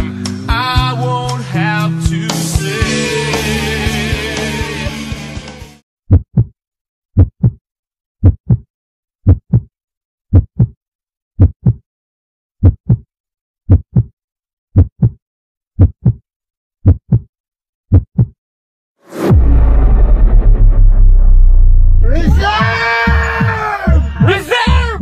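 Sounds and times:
rock music: 0.0 - 5.8
heartbeat thumps: 6.1 - 6.5, 8.2 - 8.6, 9.3 - 9.6, 10.3 - 10.7, 11.4 - 11.8, 12.6 - 13.0, 13.7 - 14.1, 14.8 - 15.2, 15.8 - 16.2, 16.8 - 17.3, 17.9 - 18.3.

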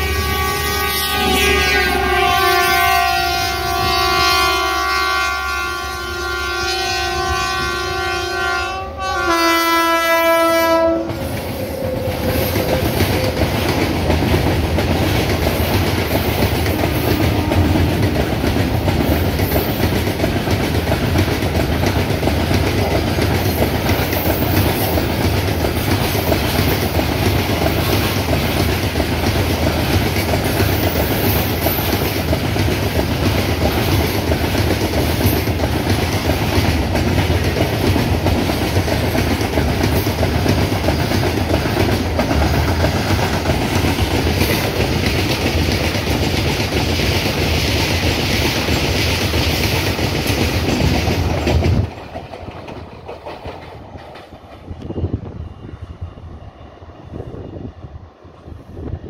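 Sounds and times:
locomotive horn: 0.0 - 13.6, 16.9 - 18.2
freight train wheels clattering: 10.7 - 57.4.

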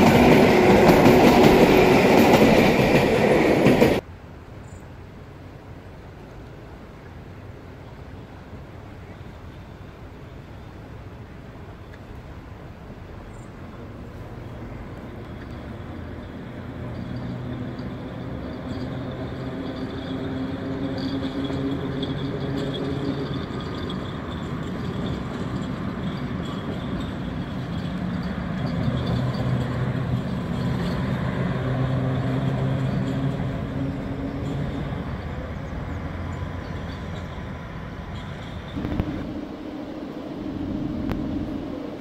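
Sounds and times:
locomotive engine drone: 0.0 - 4.1, 7.6 - 42.0
low held tones: 38.1 - 42.0.

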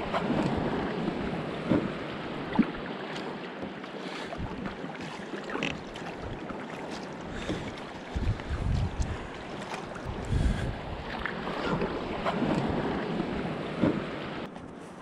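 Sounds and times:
paddle dipping through water: 0.0 - 15.0
water washing along hull: 0.0 - 15.0
wind on microphone: 4.3 - 6.5, 7.2 - 15.0.

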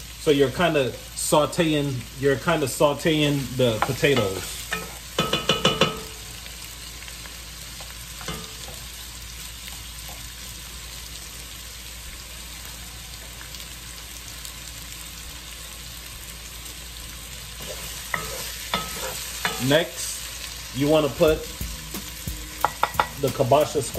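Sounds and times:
vegetables sizzling in a pot: 0.0 - 23.9
stirring in a pot: 3.8 - 6.1, 17.6 - 20.0, 21.4 - 23.4
wooden spoon knocking on pot: 5.2 - 6.1, 21.6 - 23.3.

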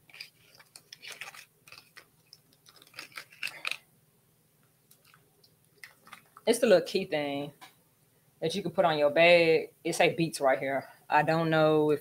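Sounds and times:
packaging rustling and crinkling: 0.0 - 3.8, 5.8 - 6.5.

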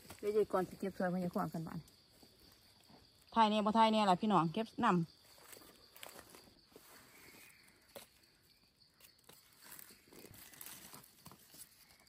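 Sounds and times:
dry leaves rustling and snapping: 9.0 - 12.0.

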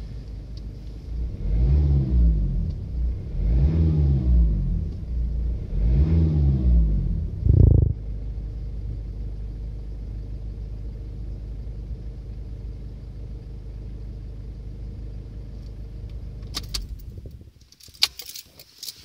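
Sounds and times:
diesel engine idling: 6.8 - 17.5
ignition key clicks: 16.1 - 19.0.

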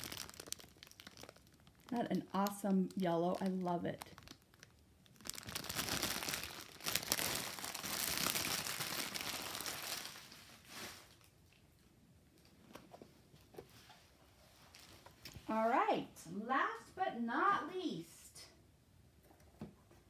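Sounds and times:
plastic packaging crinkling: 0.0 - 11.5, 14.6 - 15.5.

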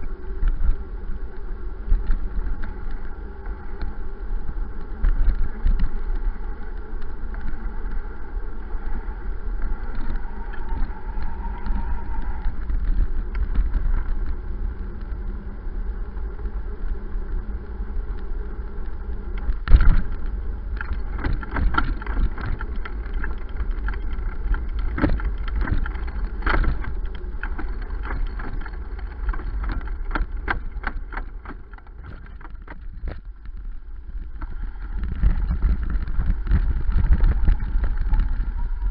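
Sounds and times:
wind buffeting: 0.0 - 38.9
bike knocks and rattles: 19.7 - 33.4.

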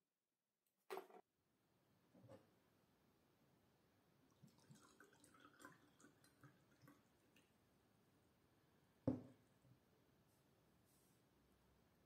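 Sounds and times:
glass knocking on wooden table: 9.1 - 9.3.

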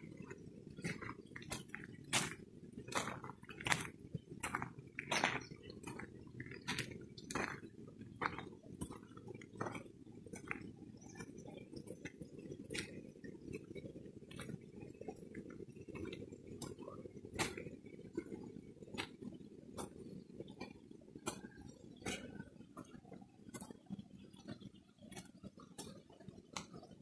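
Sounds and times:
footsteps crunching on stony road: 0.1 - 13.0.

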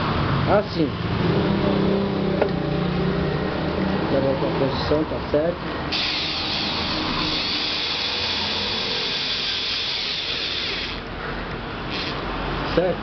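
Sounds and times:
cordless drill boring: 5.9 - 11.2, 11.8 - 12.3.

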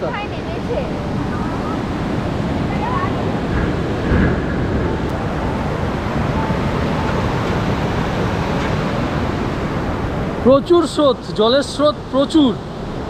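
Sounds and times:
river rushing: 0.0 - 13.0.

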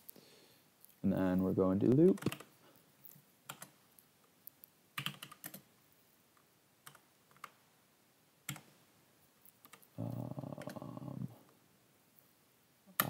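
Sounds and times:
keyboard typing: 1.8 - 3.8, 4.5 - 5.7, 6.8 - 7.6, 9.5 - 10.0, 10.6 - 10.8.

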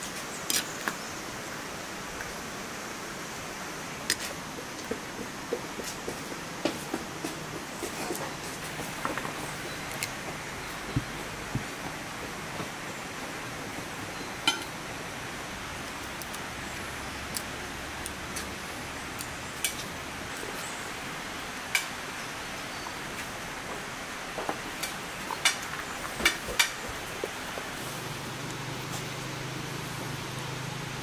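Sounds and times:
rain falling: 7.4 - 31.0.

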